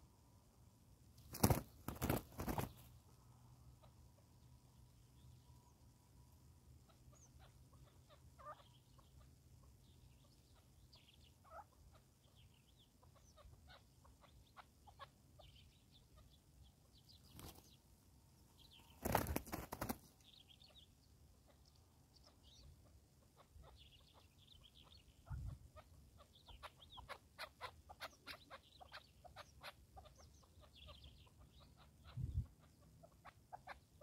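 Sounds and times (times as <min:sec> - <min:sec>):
rapid wing flaps: 0:01.2 - 0:02.8, 0:19.0 - 0:20.1
partridges clucking and chirping: 0:01.2 - 0:05.6, 0:06.7 - 0:17.9, 0:18.5 - 0:34.0.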